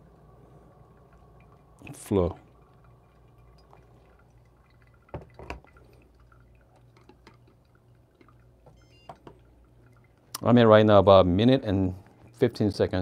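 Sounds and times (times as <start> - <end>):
low steady hum: 0.0 - 13.0
coffee dripping ticks: 0.8 - 10.6.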